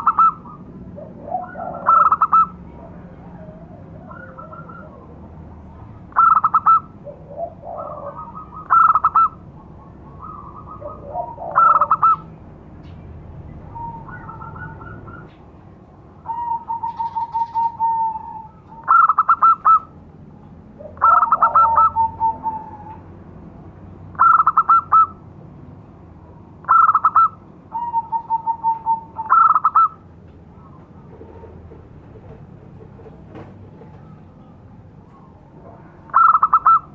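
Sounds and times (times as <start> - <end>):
dove cooing: 0.0 - 5.4, 6.1 - 12.3, 13.7 - 15.4, 16.2 - 20.0, 20.8 - 23.1, 24.1 - 25.2, 26.6 - 33.2, 35.3 - 36.9.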